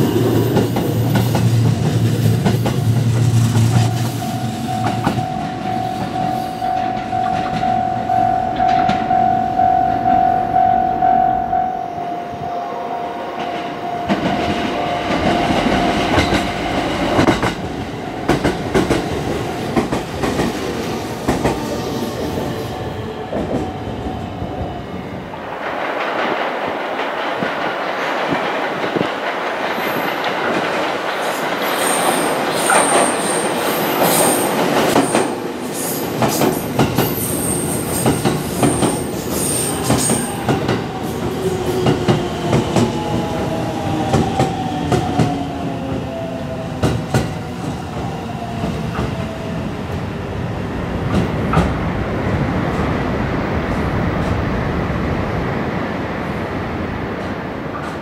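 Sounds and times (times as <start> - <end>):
train wheels clattering over rails: 14.1 - 22.3, 25.6 - 49.4.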